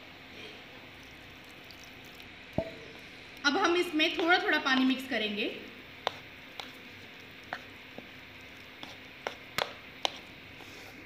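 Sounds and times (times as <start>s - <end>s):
spoon tapping against bowl: 2.6s - 2.9s.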